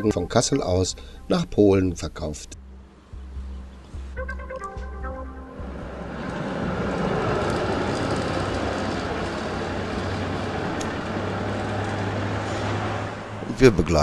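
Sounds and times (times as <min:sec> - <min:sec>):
tram wheels rumbling on rails: 0:05.4 - 0:14.0.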